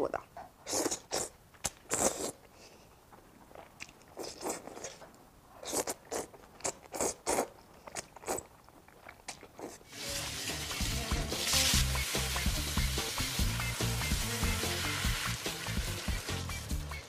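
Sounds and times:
slurping and chewing noodles: 0.7s - 2.5s, 3.5s - 10.2s
running tap water: 9.9s - 16.8s
low background music: 9.9s - 17.0s.

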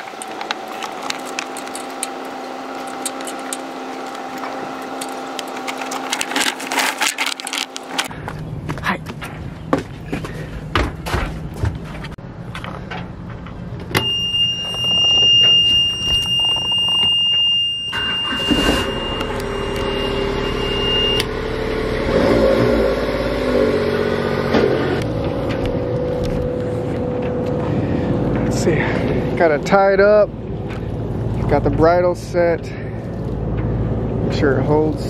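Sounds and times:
boat engine starting and running: 0.0s - 8.1s, 14.7s - 35.0s
warning buzzer: 14.0s - 22.2s.

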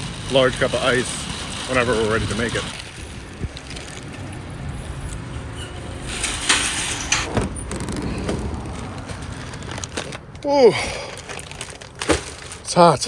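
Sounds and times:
shopping cart rattling on asphalt: 0.0s - 10.2s, 11.2s - 13.0s.

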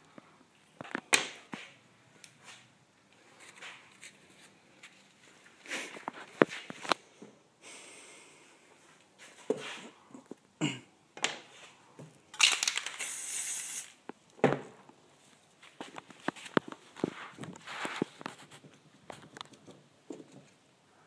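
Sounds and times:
aerosol spray can hissing: 12.9s - 14.0s.

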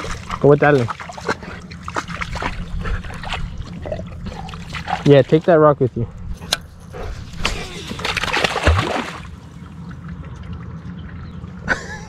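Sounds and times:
dog splashing through water: 0.0s - 5.5s, 7.3s - 9.4s
moving water: 0.0s - 12.0s.

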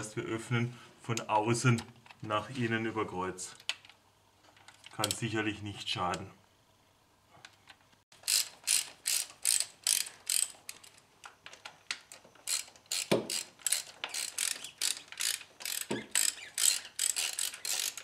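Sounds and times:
socket ratchet clicking: 8.2s - 11.0s, 11.9s - 18.0s.

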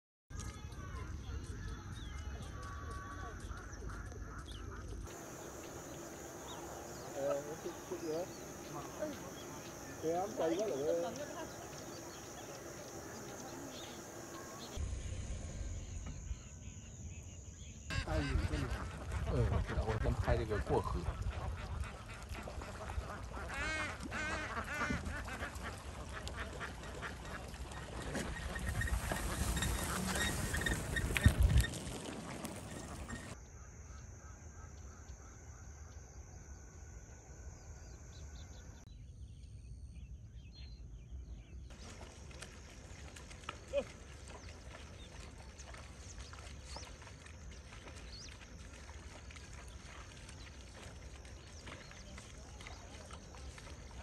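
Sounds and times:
bird chirps: 1.5s - 14.8s
splashing footsteps in water: 2.4s - 14.8s, 17.9s - 33.4s, 41.7s - 54.0s
ducks quacking: 2.8s - 14.8s, 17.9s - 31.4s
steady low rumble: 14.7s - 17.4s.

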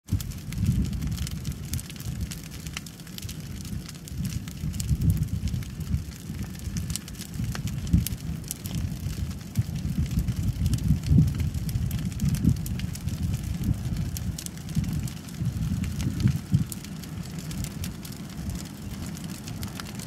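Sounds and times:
brush pile fire crackling: 0.0s - 20.0s
low fire rumble: 0.0s - 20.0s.

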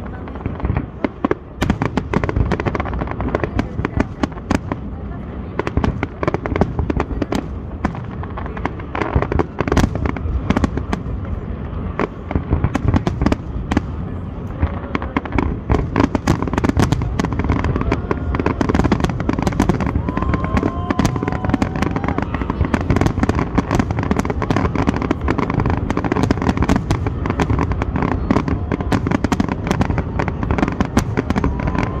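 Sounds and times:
fireworks crackling and popping: 0.0s - 32.0s.

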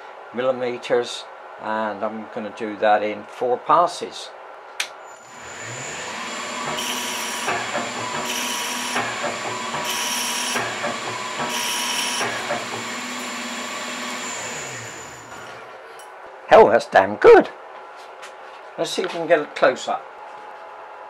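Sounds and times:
lathe spindle whine: 5.2s - 15.7s
thread cutting bursts: 5.6s - 15.4s.

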